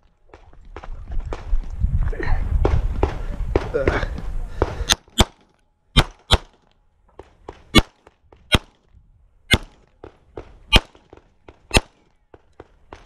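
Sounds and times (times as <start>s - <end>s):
pistol shots: 4.9s - 6.6s, 7.5s - 8.8s, 9.5s - 12.1s.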